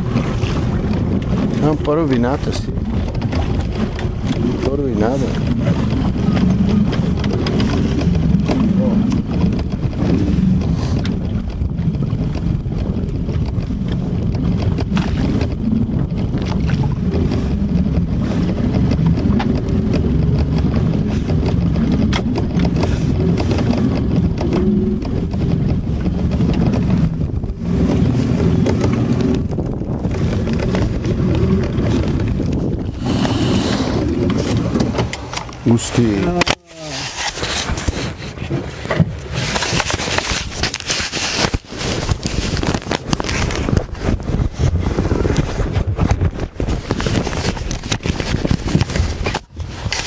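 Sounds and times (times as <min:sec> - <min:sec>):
boat engine running: 0:00.0 - 0:50.0
wind gusting on microphone: 0:00.0 - 0:50.0.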